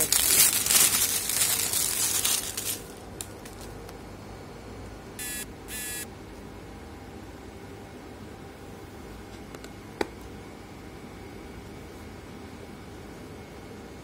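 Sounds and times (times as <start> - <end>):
plastic wrap crinkling: 0.0 - 3.8
short buzzy electronic beeps: 5.2 - 6.1.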